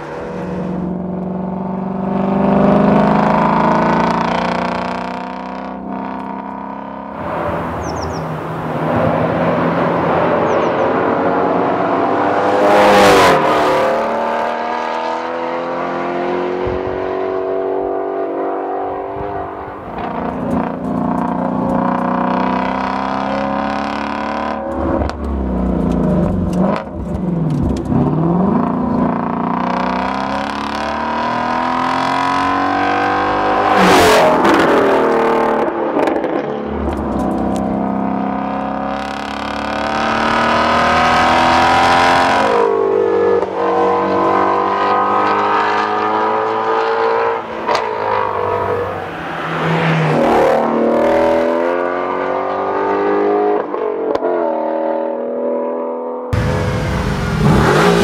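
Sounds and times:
car passing by: 48.2s - 51.3s
car exhaust revving: 56.4s - 58.0s.

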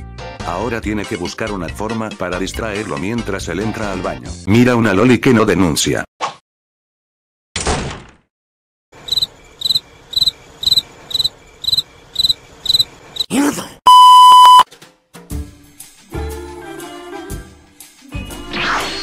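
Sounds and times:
crickets chirping: 9.0s - 13.3s
steady bleep tone: 13.9s - 14.6s.

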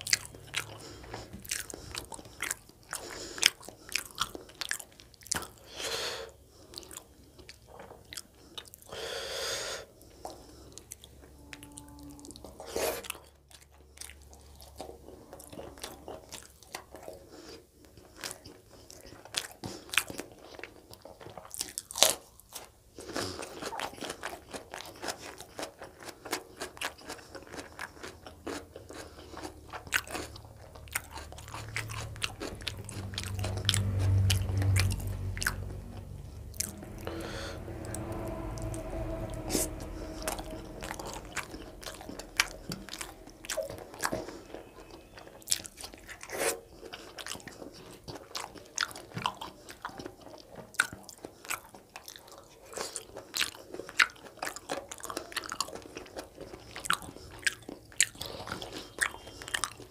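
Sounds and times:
man chewing food: 0.0s - 59.9s
low rumble: 11.1s - 12.7s, 30.4s - 45.4s.

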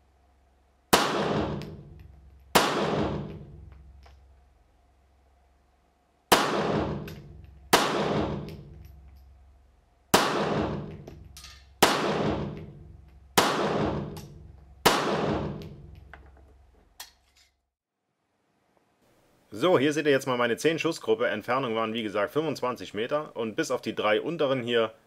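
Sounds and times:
pistol shots echoing indoors: 0.9s - 4.0s, 6.3s - 9.4s, 10.1s - 16.0s.

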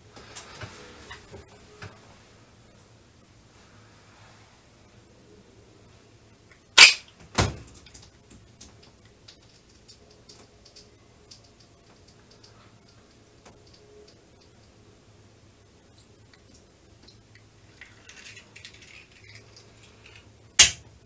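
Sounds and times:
faint scattered clicks: 7.7s - 14.8s.

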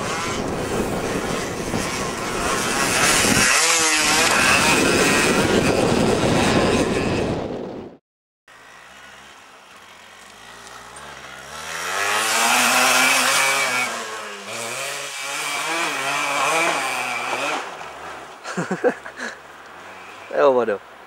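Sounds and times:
motorcycle engine passing by: 0.0s - 7.4s, 8.5s - 20.6s.

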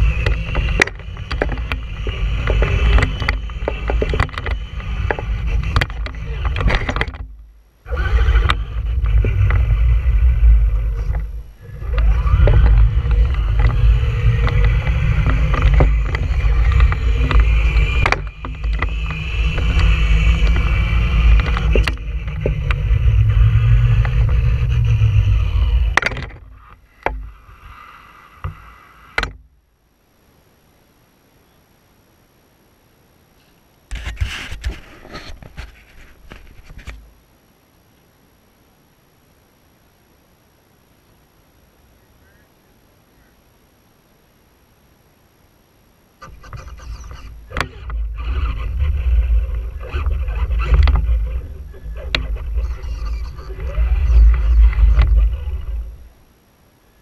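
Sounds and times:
toy truck motor whine: 0.0s - 7.1s, 7.9s - 29.3s, 46.2s - 56.1s
chassis clicks and knocks: 0.0s - 7.5s, 10.8s - 27.3s, 29.2s - 29.5s, 46.2s - 56.0s
low rumble: 7.2s - 28.2s.

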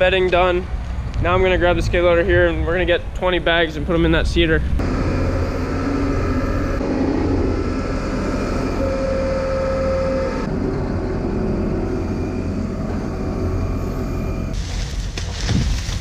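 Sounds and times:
steady whine: 3.7s - 14.6s
diesel engine running: 4.0s - 14.8s.

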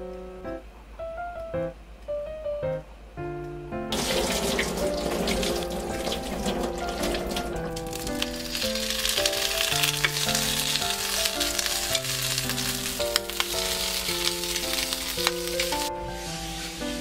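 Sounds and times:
sausages sizzling in pan: 4.0s - 17.0s.

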